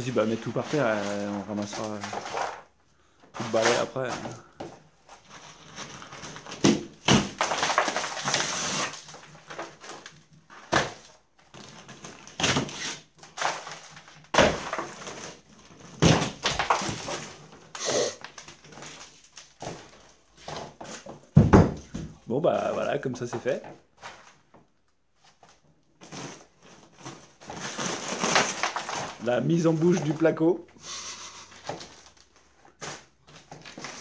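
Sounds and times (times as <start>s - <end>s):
plasterboard cracking and crumbling: 0.0s - 30.6s, 31.5s - 34.0s
debris knocks and thuds: 13.3s - 17.4s, 18.6s - 22.3s.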